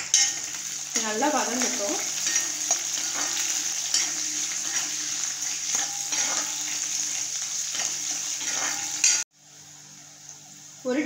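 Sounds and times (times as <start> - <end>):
onions sizzling in hot oil: 0.0 - 11.0
scraping against a pan: 2.0 - 9.2.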